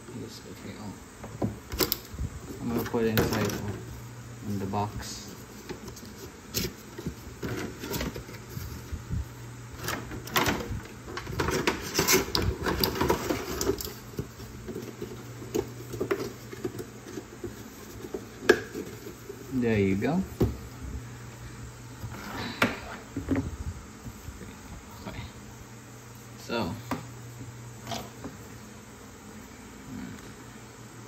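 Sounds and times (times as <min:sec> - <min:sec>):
cardboard and plastic rustling: 0:01.5 - 0:04.0, 0:04.7 - 0:20.8.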